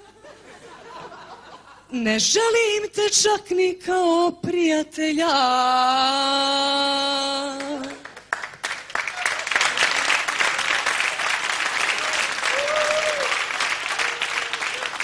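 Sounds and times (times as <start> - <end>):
audience applause: 8.0 - 15.0.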